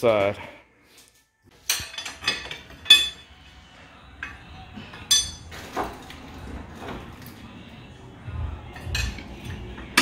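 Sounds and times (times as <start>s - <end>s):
tools clinking against metal: 1.6s - 3.3s, 4.2s - 5.8s.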